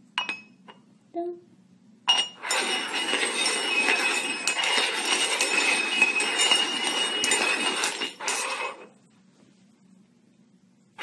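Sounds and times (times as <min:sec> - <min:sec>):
metal cups clinking: 0:02.1 - 0:09.0
metal cups scraping on wooden floor: 0:02.1 - 0:09.0.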